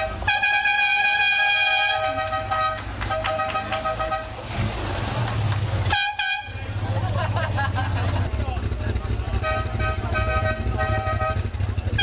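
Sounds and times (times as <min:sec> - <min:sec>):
horn blasts: 0:00.0 - 0:04.6, 0:05.9 - 0:06.8, 0:09.3 - 0:12.0
low engine rumble: 0:00.0 - 0:12.0.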